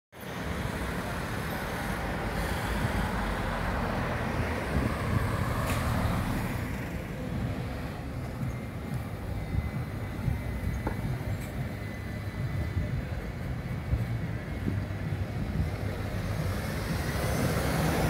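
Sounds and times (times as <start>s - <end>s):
cars passing: 0.2s - 18.0s
wind buffeting microphone: 4.3s - 5.6s.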